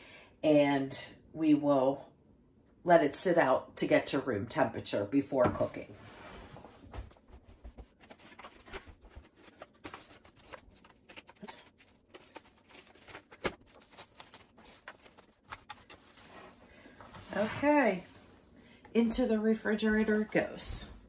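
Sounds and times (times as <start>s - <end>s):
plastic wrap crinkling and clicking: 8.2s - 16.3s.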